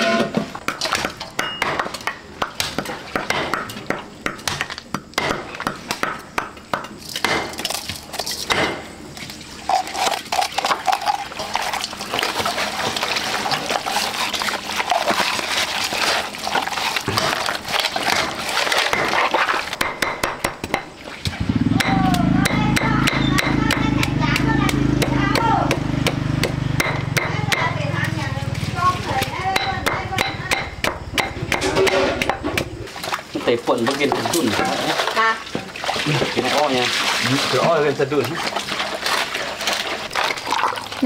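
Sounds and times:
cleaver chopping on wooden board: 0:00.7 - 0:07.6, 0:19.8 - 0:20.9, 0:21.8 - 0:27.7
meat mixed by hand in bowl: 0:09.1 - 0:19.8, 0:20.9 - 0:29.6, 0:31.6 - 0:41.0.

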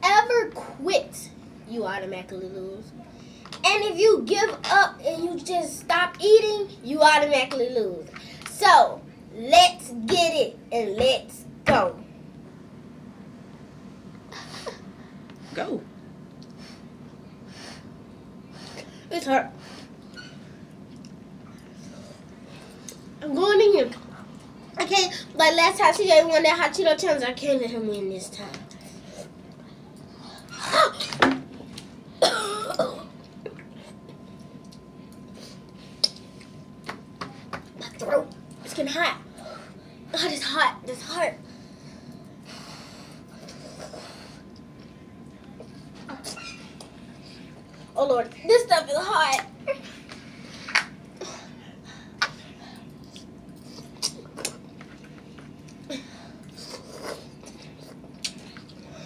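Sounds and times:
steady low hum: 0:00.0 - 0:59.0
chewing sounds: 0:20.8 - 0:21.8, 0:52.2 - 0:59.0
child clearing throat: 0:30.6 - 0:31.2, 0:32.2 - 0:33.6.

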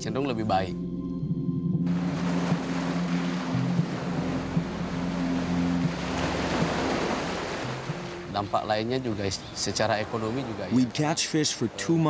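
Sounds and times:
person wading through waves: 0:01.9 - 0:08.3
surf washing and splashing: 0:01.9 - 0:12.0.

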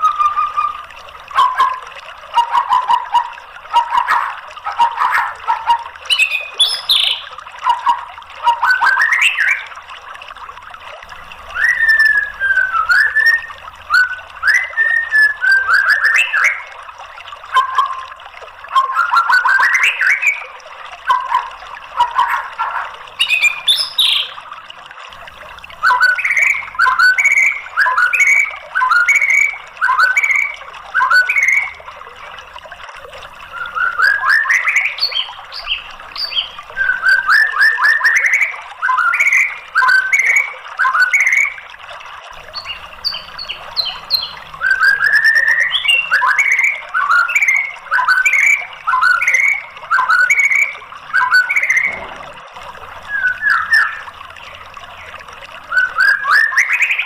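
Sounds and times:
bird singing whistled phrases: 0:00.0 - 0:01.8, 0:02.4 - 0:09.7, 0:11.5 - 0:16.7, 0:18.7 - 0:20.4, 0:21.1 - 0:24.4, 0:25.8 - 0:31.8, 0:33.5 - 0:41.6, 0:42.5 - 0:52.2, 0:53.1 - 0:54.1, 0:55.6 - 0:57.0.

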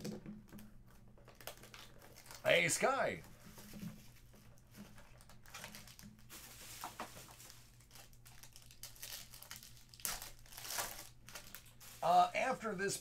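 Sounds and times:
foil wrapper crinkling: 0:01.3 - 0:02.8, 0:05.0 - 0:12.2.

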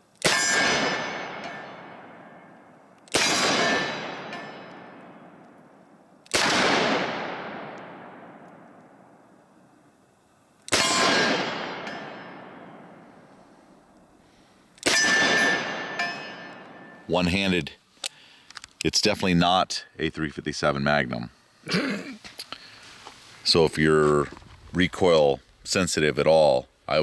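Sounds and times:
revolver shots echoing: 0:03.1 - 0:05.6, 0:06.3 - 0:09.1, 0:10.7 - 0:13.2, 0:14.8 - 0:17.0.

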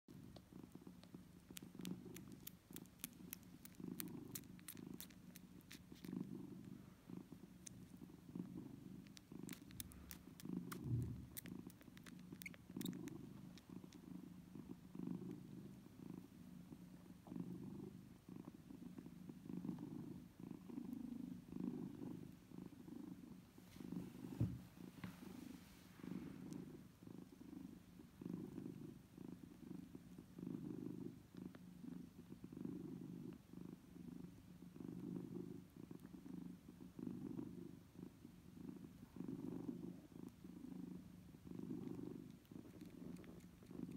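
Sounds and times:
cat purring: 0:00.1 - 0:43.9
kittens suckling clicks: 0:00.3 - 0:06.2, 0:09.0 - 0:14.0, 0:41.9 - 0:43.9.

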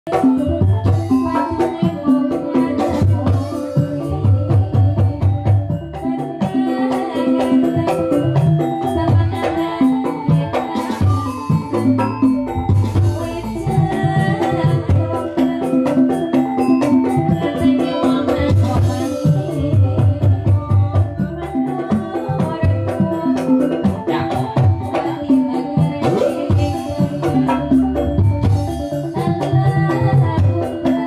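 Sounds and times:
busy drum rhythm: 0:00.1 - 0:31.0
keyboard: 0:00.1 - 0:31.0
pitched melodic percussion notes: 0:00.1 - 0:31.0.

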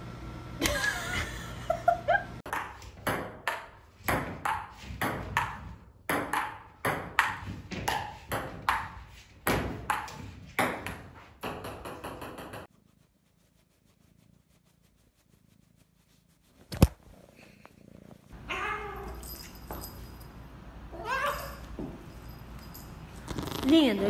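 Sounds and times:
ping-pong ball bouncing on table: 0:02.5 - 0:12.6.

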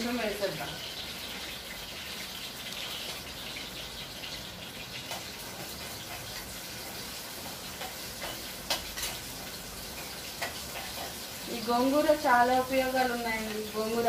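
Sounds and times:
chillies sizzling in hot oil: 0:00.0 - 0:14.0
spatula stirring: 0:04.9 - 0:11.6
spatula knocking against pan: 0:07.4 - 0:11.2.

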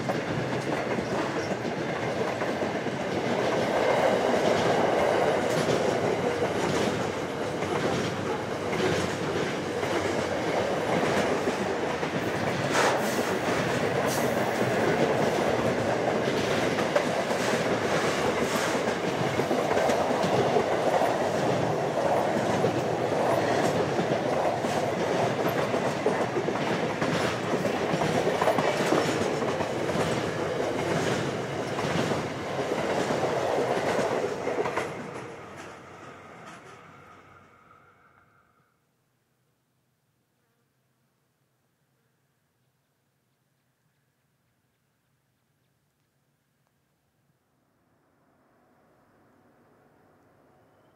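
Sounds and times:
wheels clicking over rail joints: 0:00.0 - 0:35.8
steel wheels rumbling on rail: 0:00.0 - 0:38.3.

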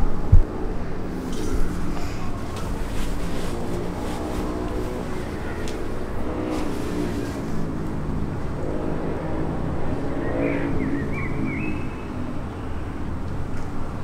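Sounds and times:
motorcycle engine running: 0:01.6 - 0:09.2.

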